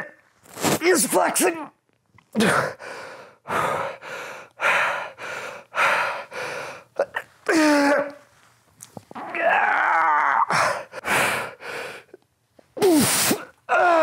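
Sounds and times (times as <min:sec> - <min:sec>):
man breathing hard: 0:02.7 - 0:07.0, 0:10.5 - 0:12.2
man groaning: 0:09.2 - 0:10.9, 0:13.7 - 0:14.0.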